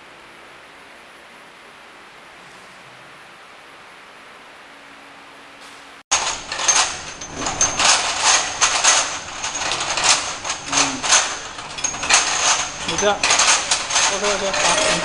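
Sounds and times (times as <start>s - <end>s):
vials clicking and clinking: 6.1s - 15.0s.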